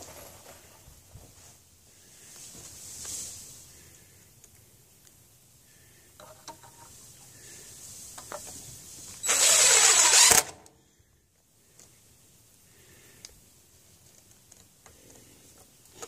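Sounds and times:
cordless driver driving screw: 9.2 - 10.7.

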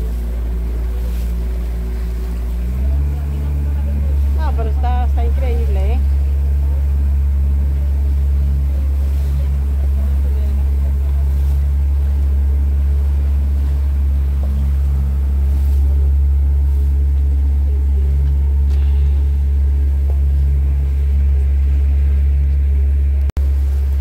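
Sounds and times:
motorboat engine drone: 0.0 - 24.0.

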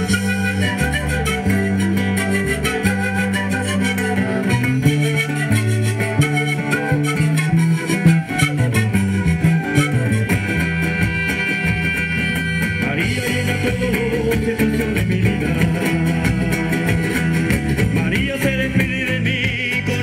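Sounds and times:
flute high note: 0.0 - 12.9
wavering violin melody: 0.0 - 17.9
live folk band playing: 0.0 - 20.0.

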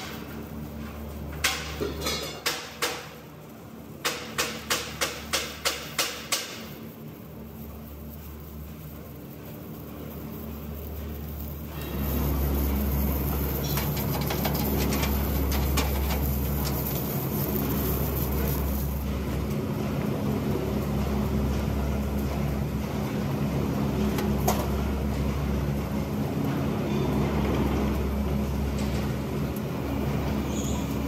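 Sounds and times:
welder electrical hum: 0.0 - 31.0
crackling ticks: 2.5 - 20.2.

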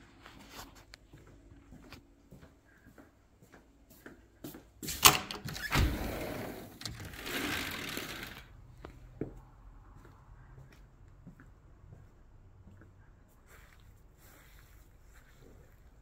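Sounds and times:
door latch click: 5.0 - 6.0
sliding door rolling on track: 5.6 - 8.5.

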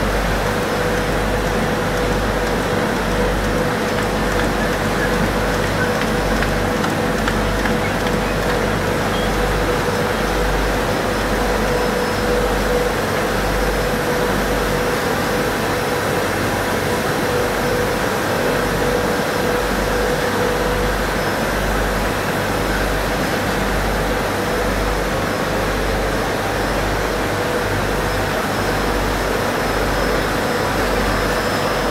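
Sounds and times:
printing press mechanical din: 0.0 - 23.8.

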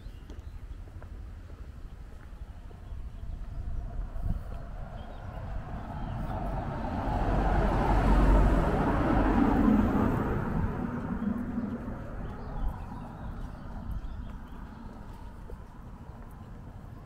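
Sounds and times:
vehicle driving past: 2.6 - 15.9.

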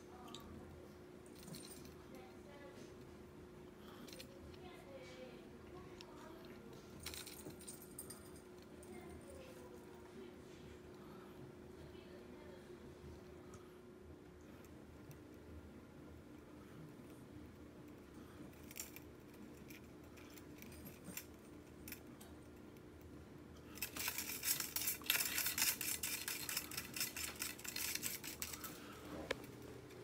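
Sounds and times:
cat toy jingling and clicking: 23.8 - 28.8.

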